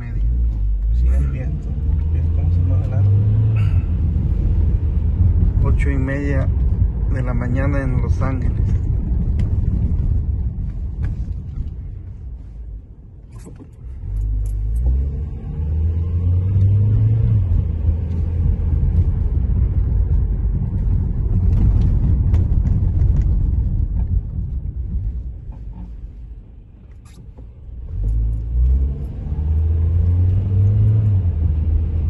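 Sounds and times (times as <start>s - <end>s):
car engine rumbling: 0.0s - 32.0s
tyres on wet road: 0.0s - 32.0s.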